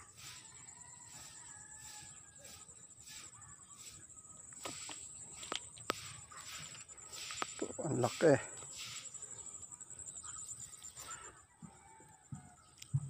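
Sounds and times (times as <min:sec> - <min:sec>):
insects trilling: 0:00.0 - 0:13.0
short insect chirp: 0:00.0 - 0:13.0
distant animal call: 0:05.9 - 0:12.7.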